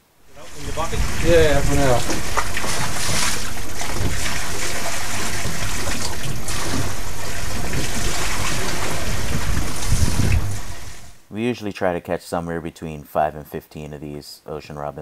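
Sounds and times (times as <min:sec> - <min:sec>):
sea water rushing around hull: 0:00.2 - 0:11.2.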